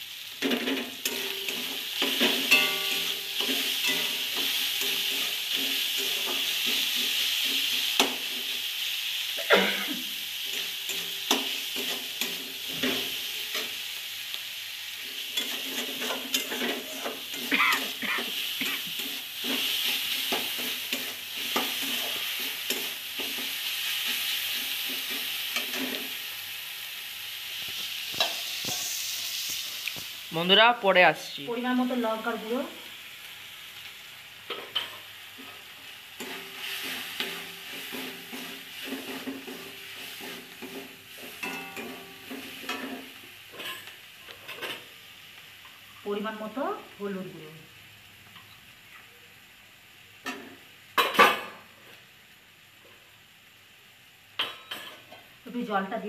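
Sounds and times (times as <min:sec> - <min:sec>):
masala sizzling in oil: 0:00.0 - 0:56.0
metal spatula scraping pan: 0:00.4 - 0:08.2, 0:15.2 - 0:26.1, 0:36.2 - 0:43.9.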